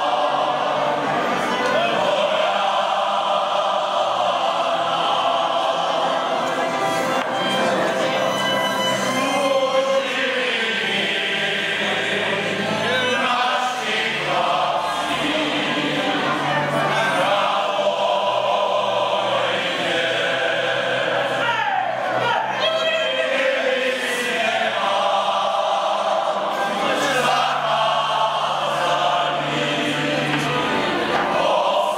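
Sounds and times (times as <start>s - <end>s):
men singing in chorus: 9.2s - 16.2s, 16.9s - 21.4s, 23.3s - 31.9s.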